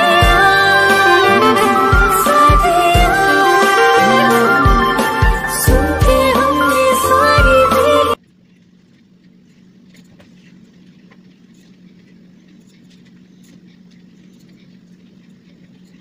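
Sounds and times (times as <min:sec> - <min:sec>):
low hum: 0:00.0 - 0:08.2
faint clicks and rustles: 0:08.2 - 0:16.0.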